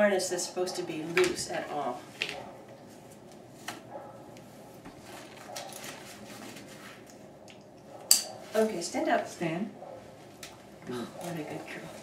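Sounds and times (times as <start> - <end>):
harness straps rustling: 2.1 - 8.7.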